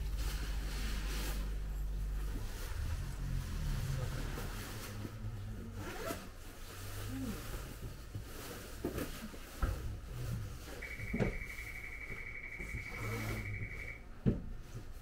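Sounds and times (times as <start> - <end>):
cable car low hum: 0.0 - 8.8, 9.8 - 15.0
faint scraping rustles: 0.0 - 15.0.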